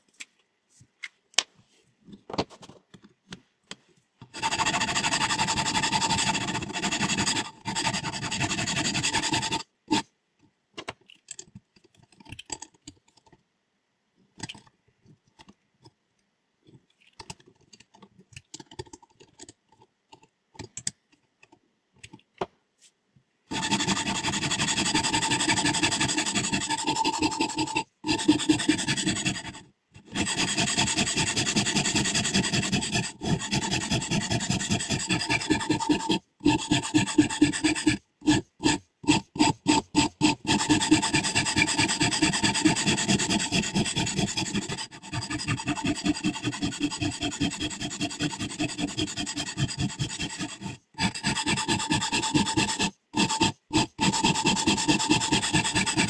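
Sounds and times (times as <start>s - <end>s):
handling clicks and taps: 16.7s - 22.6s
sharpening stone scraping steel blade: 23.5s - 56.0s.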